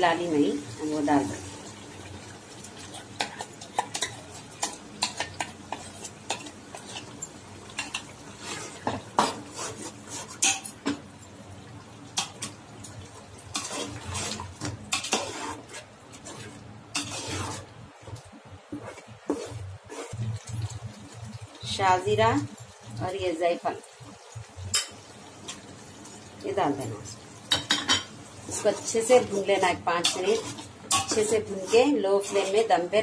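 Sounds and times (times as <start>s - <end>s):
metal spoon scraping metal pot: 13.5s - 17.6s, 28.5s - 32.9s.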